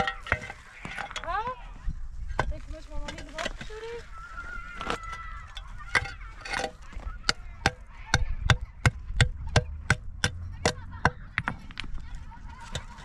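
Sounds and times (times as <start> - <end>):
stone knocking on concrete block: 7.3 - 11.6.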